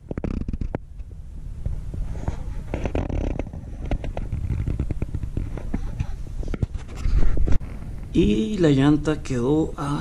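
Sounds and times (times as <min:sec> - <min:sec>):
clicks and rustles: 0:00.0 - 0:01.1, 0:02.2 - 0:08.1.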